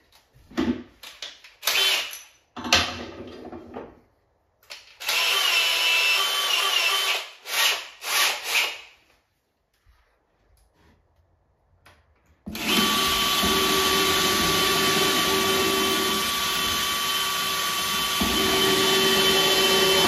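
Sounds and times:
cordless drill whining: 5.0 - 8.8, 12.5 - 20.0.

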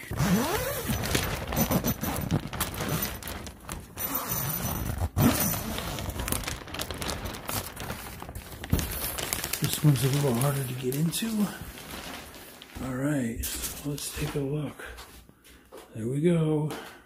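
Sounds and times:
plastic sheeting rustling: 0.0 - 14.5.

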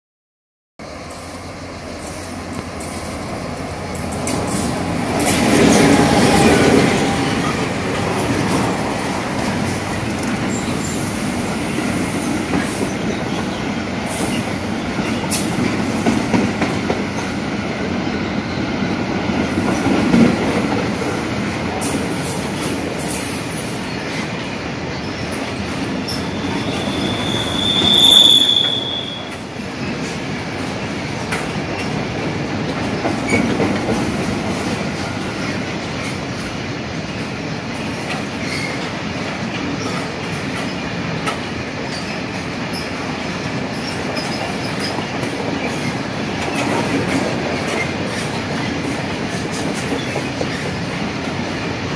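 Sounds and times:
diesel locomotive passing: 0.8 - 51.9
high wheel squeal: 26.0 - 29.4
freight wagons rolling on rails: 28.7 - 51.9.

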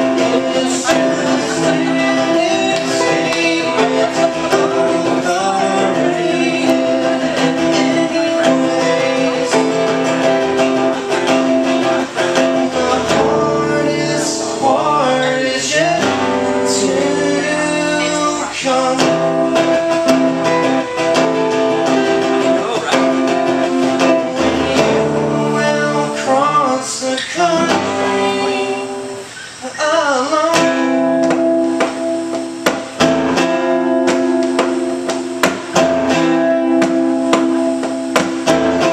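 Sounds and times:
man singing: 0.0 - 31.9
acoustic guitars strummed: 0.0 - 38.9.

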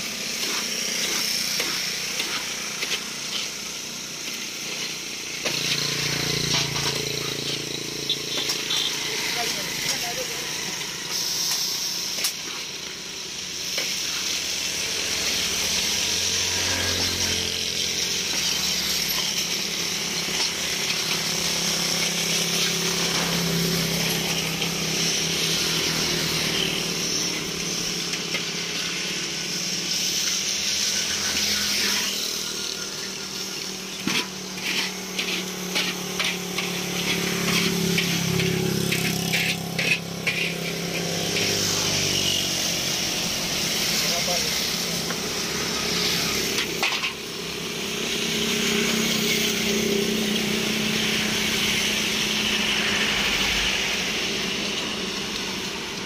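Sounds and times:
metal spatula scraping iron pan: 0.4 - 3.6, 34.0 - 42.0, 46.3 - 47.2.

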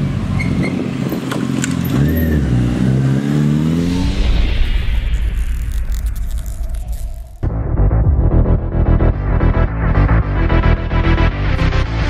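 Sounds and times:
vehicle engine revving: 0.0 - 10.6
rising whoosh: 3.2 - 9.8
low rumble: 3.6 - 11.3.

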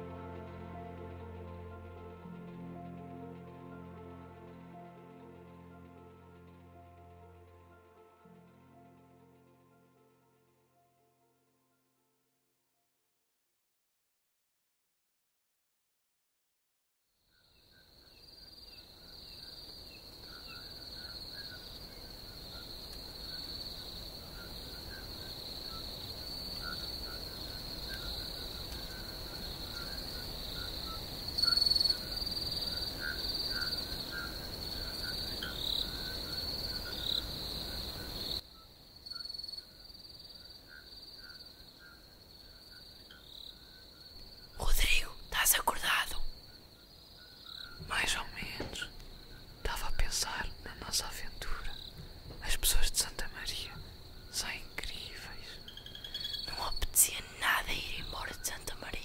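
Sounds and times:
crickets chirring: 17.3 - 59.0.

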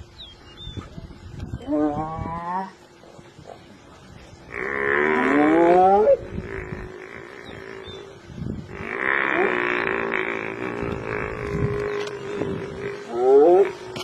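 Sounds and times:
hyena calls: 4.5 - 14.0.

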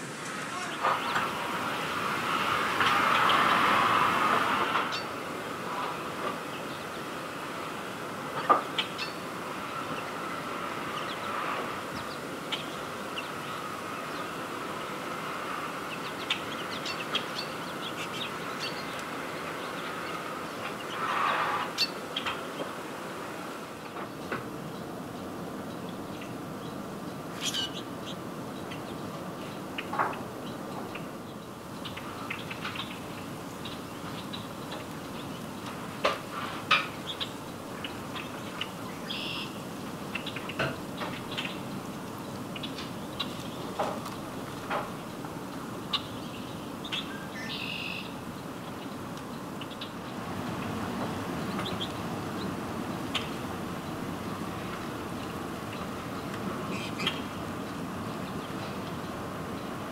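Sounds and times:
rushing swell: 0.0 - 4.7
blackbirds chip calls: 0.0 - 59.9
steady outdoor hiss: 0.0 - 59.9
bird chirps: 37.0 - 41.6, 45.9 - 48.2.

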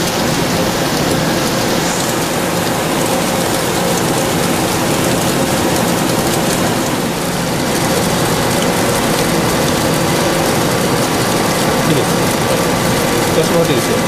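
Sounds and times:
coolant spraying hiss: 0.0 - 14.0
spindle hum and whine: 0.0 - 14.0.

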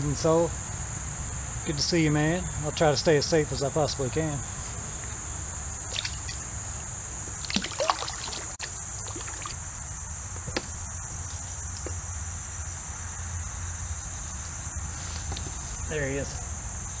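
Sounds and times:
insect chorus: 0.0 - 17.0
water sloshing: 5.8 - 6.6, 7.4 - 9.6.

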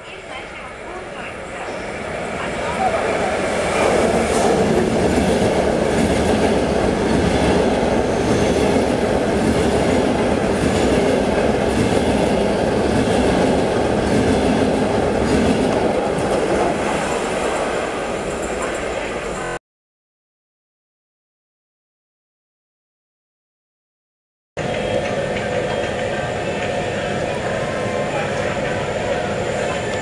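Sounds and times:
electric train passing: 0.0 - 19.6, 24.6 - 30.0.

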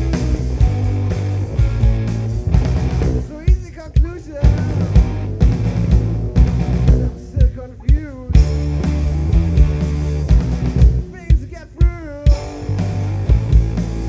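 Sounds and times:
sliding bending guitar notes: 0.0 - 3.2, 4.4 - 7.2, 8.3 - 11.2, 12.3 - 14.0
blues rock band playing live: 0.0 - 14.0.

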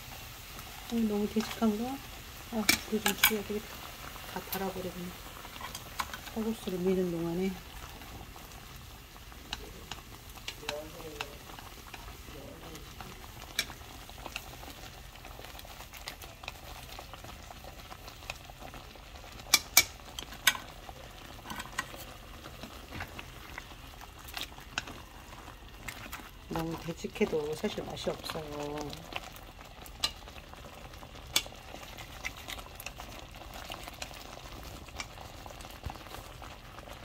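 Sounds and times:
porridge bubbling in a pan: 0.0 - 37.0
spoon scraping and tapping pan: 19.5 - 20.7, 21.4 - 22.0.

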